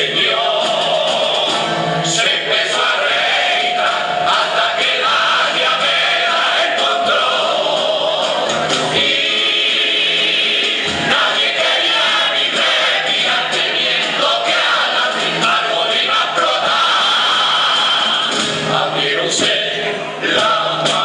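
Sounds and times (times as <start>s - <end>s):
guitar accompaniment: 0.0s - 21.0s
male chorus singing: 0.0s - 21.0s.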